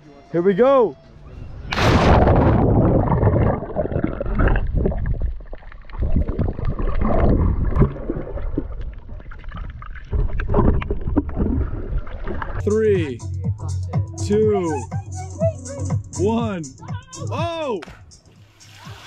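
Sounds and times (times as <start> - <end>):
low underwater rumble: 1.7 - 12.6
underwater rushing and bubbling: 1.7 - 12.6.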